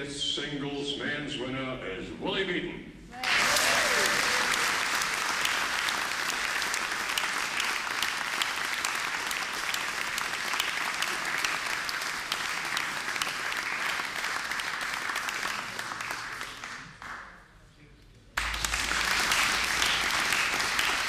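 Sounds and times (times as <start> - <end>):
audience applauding: 3.2 - 17.4, 18.4 - 21.0.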